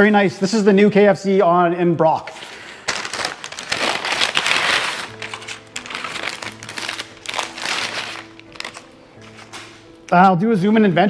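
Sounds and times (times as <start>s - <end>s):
paper packaging rustling: 2.2s - 10.0s.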